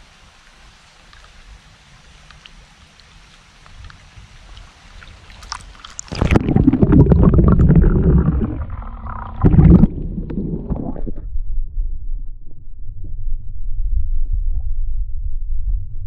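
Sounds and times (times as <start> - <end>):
stream hiss: 0.0 - 6.7
underwater rumble with crackles: 0.5 - 16.0.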